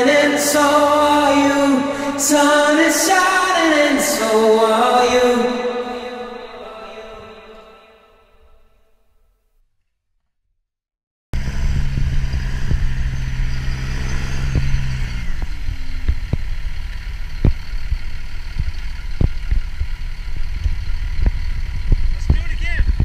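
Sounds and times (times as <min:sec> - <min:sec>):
snowcat engine humming: 0:11.4 - 0:23.0.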